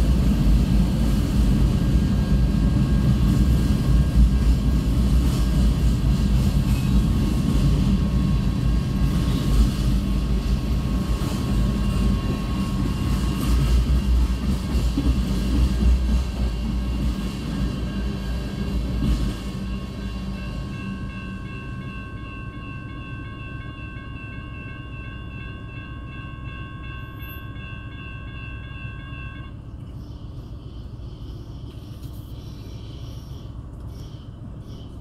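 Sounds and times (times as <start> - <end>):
freight train rumbling over rails: 0.0 - 35.0
crossing bells ringing: 6.0 - 30.4.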